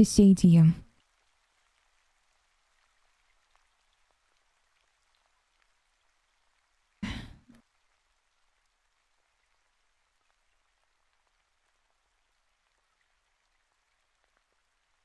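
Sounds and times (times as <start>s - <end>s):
faint steady hiss: 0.0s - 15.0s
woman breathy throat sound: 7.0s - 7.5s.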